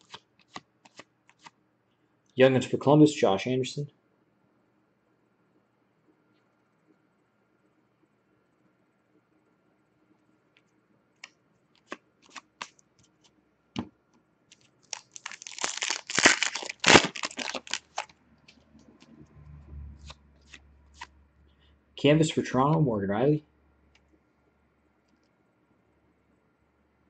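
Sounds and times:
cards clicking and tapping: 0.0 - 1.5, 11.8 - 12.8
low steady hum: 0.0 - 27.0
foil wrapper crinkling and tearing: 14.5 - 18.1.

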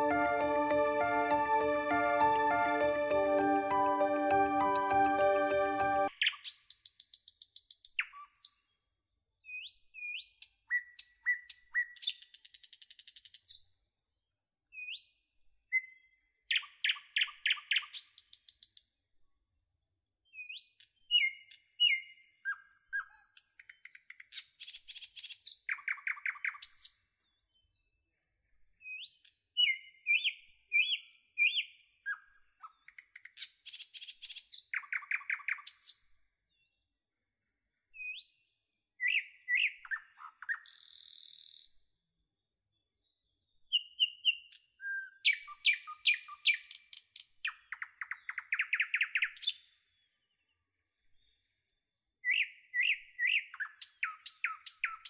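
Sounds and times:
songbird singing: 20.4 - 22.9, 28.9 - 36.0, 38.0 - 41.6, 43.4 - 55.0.

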